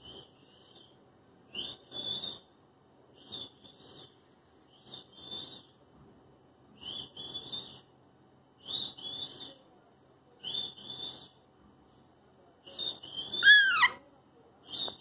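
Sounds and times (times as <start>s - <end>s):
parakeet two-note whistles: 13.4s - 14.0s.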